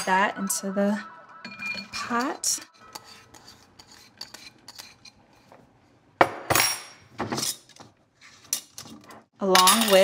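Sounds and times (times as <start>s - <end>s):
glass jar clinking: 1.4s - 3.1s
food scraped into a pot: 2.7s - 5.8s.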